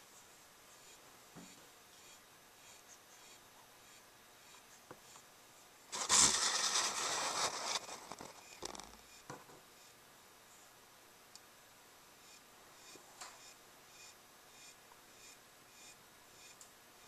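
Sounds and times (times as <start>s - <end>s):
crackles: 5.9s - 9.1s
camera handling scraping and rustling: 6.0s - 8.8s.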